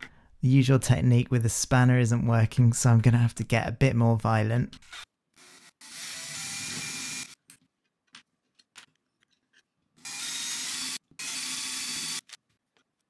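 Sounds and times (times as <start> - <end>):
cordless drill running: 5.4 - 7.4, 10.0 - 12.4.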